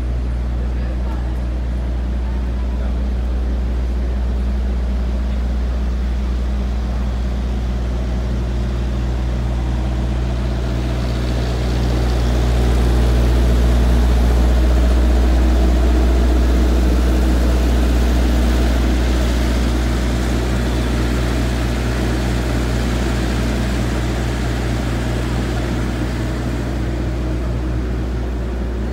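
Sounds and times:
truck motor humming: 0.0s - 28.9s.

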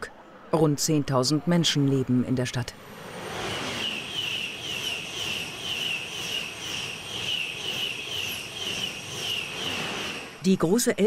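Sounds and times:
train passing with pulsing whine: 2.7s - 10.5s.

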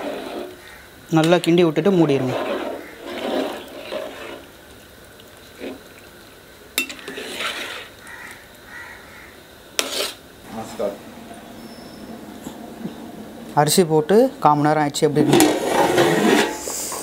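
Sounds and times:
ladle scraping in pot: 0.0s - 0.6s, 2.0s - 4.5s, 6.8s - 8.0s, 9.8s - 10.2s, 15.3s - 17.0s.

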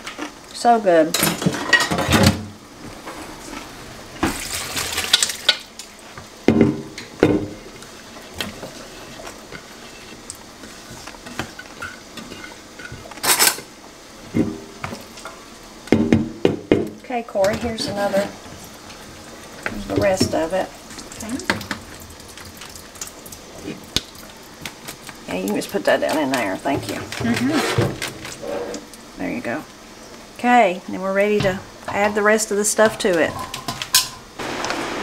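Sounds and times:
bowls and spoon clattering in sink: 1.2s - 2.4s, 11.2s - 13.7s, 32.8s - 34.3s
liquid splashing: 4.2s - 5.5s.

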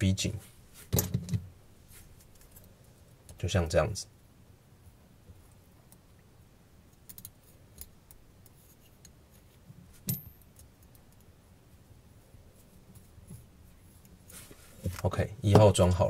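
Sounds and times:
small parts clicking and tapping: 6.9s - 9.2s, 10.0s - 11.4s.

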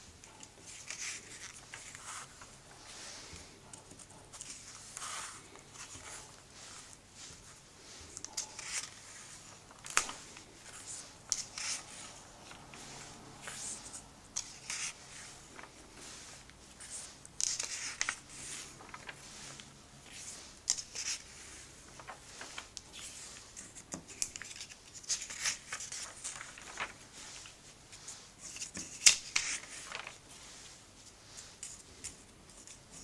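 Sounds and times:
paper pages rustling: 0.0s - 33.0s
sharp paper snap: 9.8s - 10.2s, 28.6s - 30.1s.

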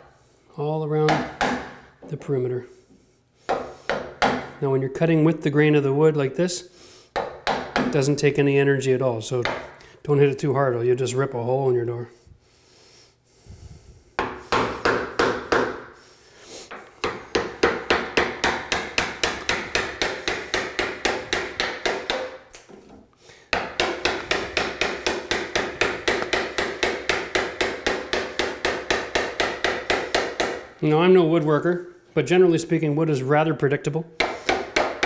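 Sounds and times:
hammer tapping a chisel: 7.2s - 8.0s, 14.2s - 15.9s, 16.7s - 30.7s, 34.2s - 35.0s.

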